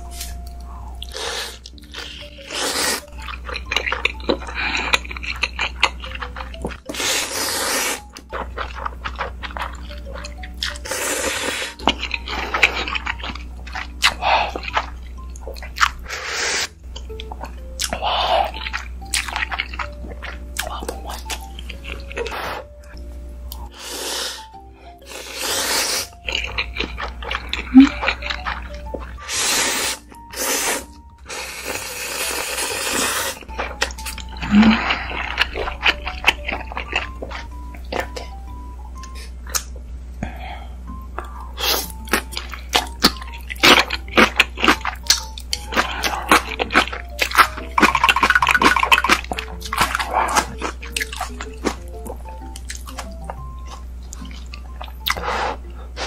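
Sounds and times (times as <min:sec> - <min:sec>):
soft background music: 0:00.0 - 0:56.0
wet chewing: 0:00.2 - 0:23.7, 0:25.1 - 0:38.4, 0:41.2 - 0:56.0
noodles slurped: 0:45.6 - 0:51.8.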